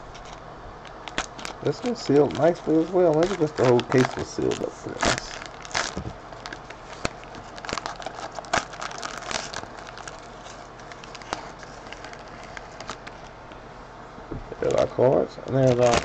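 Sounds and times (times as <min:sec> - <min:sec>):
wrapper crinkling and tearing: 0:00.1 - 0:13.3, 0:14.6 - 0:16.0.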